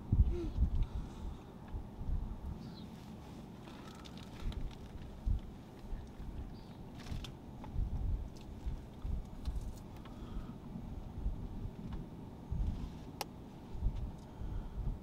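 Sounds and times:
wind buffeting microphone: 0.0 - 2.9, 4.2 - 9.8, 13.7 - 15.0.

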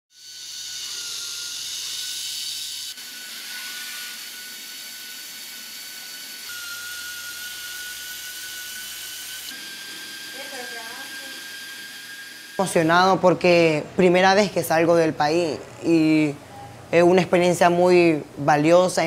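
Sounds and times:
small electric motors whirring: 0.1 - 13.2.

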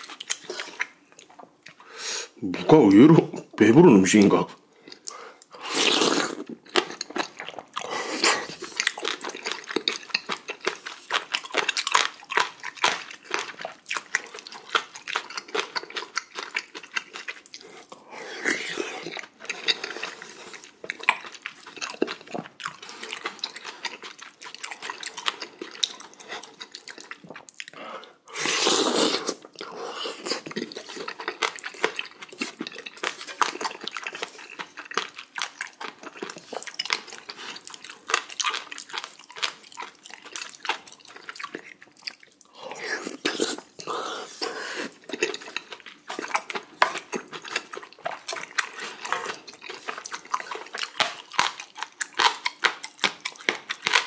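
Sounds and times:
wet chewing and lip smacks: 0.0 - 1.9, 4.6 - 5.6, 6.2 - 18.0, 18.7 - 28.1, 29.2 - 54.0
person slurping broth: 4.9 - 6.6, 17.8 - 20.6, 27.9 - 30.5, 42.5 - 45.1.

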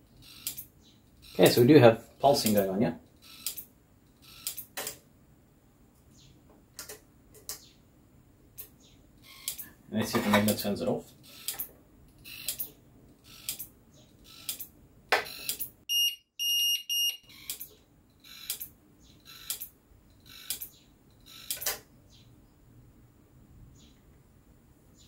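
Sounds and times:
electric fence energizer ticking: 0.0 - 4.9, 8.6 - 9.7, 11.2 - 15.8, 17.1 - 21.8
short high alarm beeps: 9.2 - 9.6, 15.3 - 17.6.

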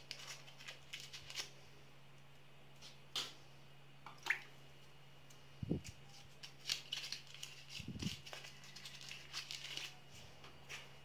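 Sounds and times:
foil wrapper crinkling: 0.0 - 1.6, 5.9 - 11.0
faint steady hum: 0.0 - 11.0.

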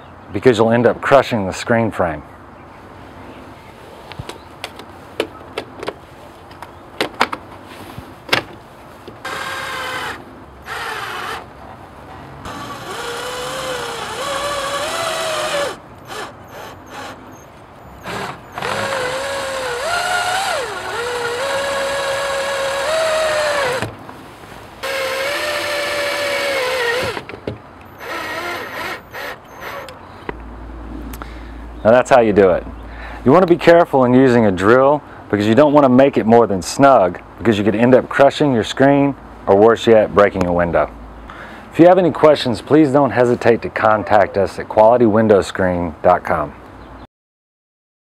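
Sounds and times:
power drill driving screws: 9.2 - 11.5, 12.5 - 23.9, 24.8 - 27.3, 28.0 - 30.0.

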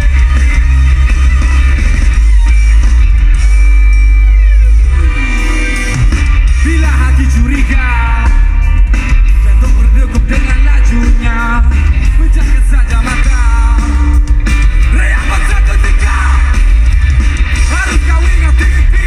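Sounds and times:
heavy bass: 0.0 - 19.0
rock band playing live: 0.0 - 19.0
person singing: 14.8 - 16.6.

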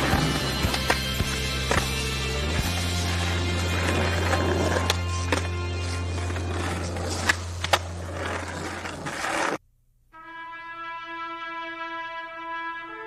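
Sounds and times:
background music: 0.0 - 7.8, 10.2 - 13.0
skateboard wheels rolling: 0.0 - 9.6
held brass note: 10.1 - 13.0.

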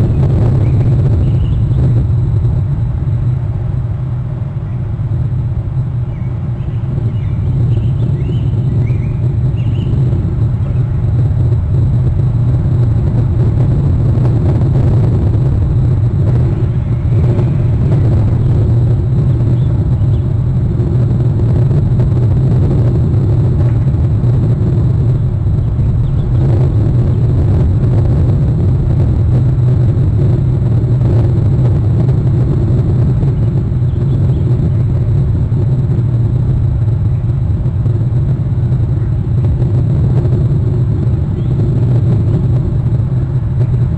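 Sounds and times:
loud low rumble: 0.0 - 43.9.

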